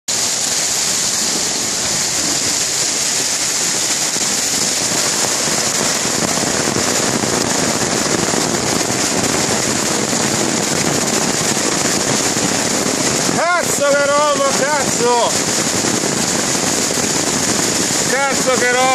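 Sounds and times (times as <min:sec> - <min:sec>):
hail and rain pelting down: 0:00.1 - 0:18.9.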